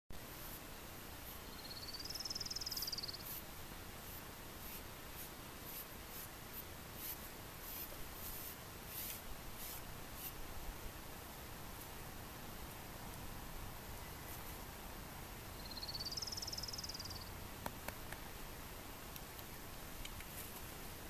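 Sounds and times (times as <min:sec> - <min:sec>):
scratchy grooming strokes: 0:00.3 - 0:01.4, 0:02.7 - 0:10.4.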